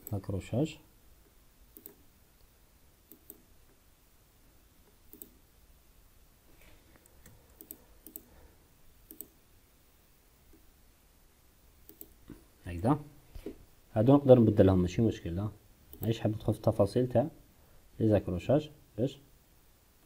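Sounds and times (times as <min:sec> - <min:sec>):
computer mouse clicks: 0:01.2 - 0:02.0, 0:03.1 - 0:03.8, 0:04.8 - 0:05.4, 0:07.0 - 0:08.3, 0:09.0 - 0:09.4, 0:11.8 - 0:12.4, 0:15.9 - 0:16.2.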